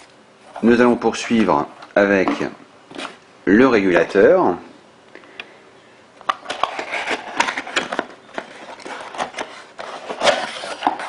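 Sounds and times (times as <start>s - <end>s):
cardboard box rustling and scraping: 6.5s - 11.0s.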